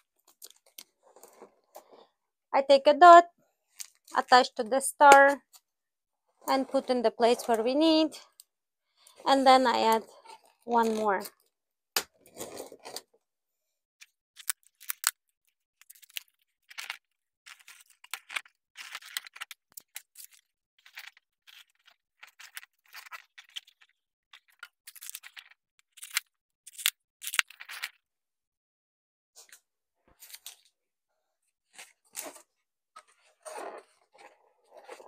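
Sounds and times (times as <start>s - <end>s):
rustles and crinkles: 0.0s - 2.2s, 3.7s - 4.4s, 6.4s - 11.5s, 12.1s - 13.2s, 15.8s - 28.0s, 29.4s - 30.8s, 31.6s - 35.0s.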